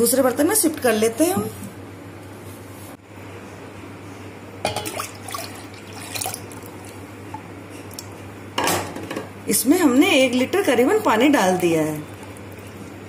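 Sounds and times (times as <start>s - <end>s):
juice splashing into pot: 4.7s - 7.0s.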